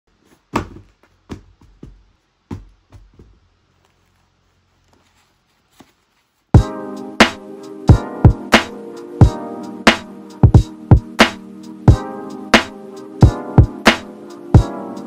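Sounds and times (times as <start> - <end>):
cardboard box knocks and scuffs: 0.4 - 3.4
music with a beat: 6.6 - 15.0.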